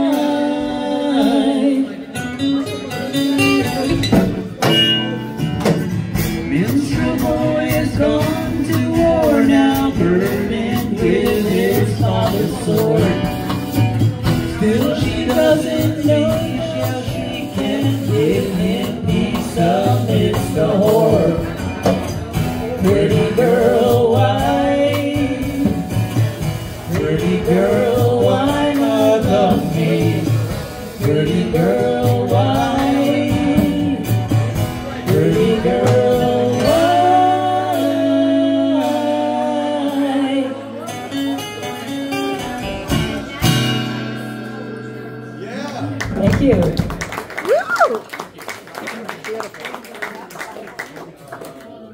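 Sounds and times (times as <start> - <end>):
person singing: 0.0 - 2.4, 6.5 - 13.6, 14.2 - 22.0, 22.6 - 41.1
drums: 0.0 - 44.7, 45.9 - 48.0
acoustic guitar: 0.0 - 48.4.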